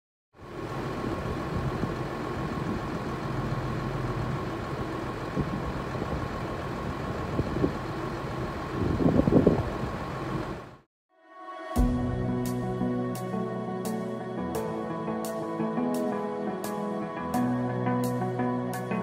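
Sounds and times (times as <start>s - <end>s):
tractor diesel engines idling: 0.4s - 10.8s.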